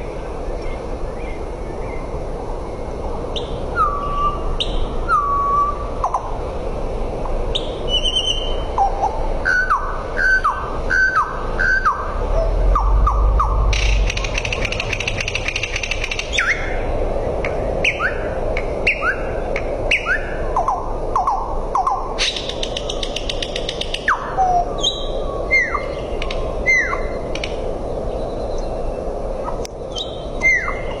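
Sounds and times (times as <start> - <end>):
nightingale singing: 7.5 - 16.8, 17.5 - 18.3, 19.9 - 27.2, 29.9 - 31.0.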